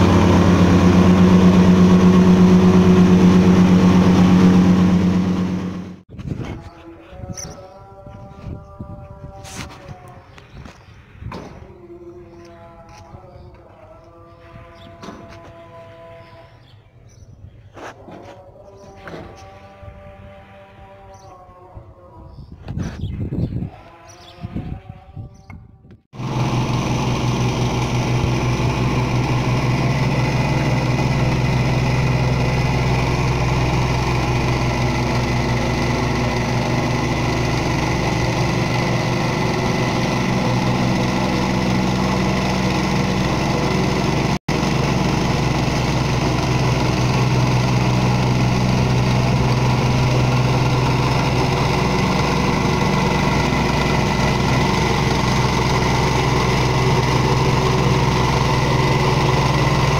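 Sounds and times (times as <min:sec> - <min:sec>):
plate compactor engine running: 0:00.0 - 0:06.0, 0:26.2 - 0:59.9.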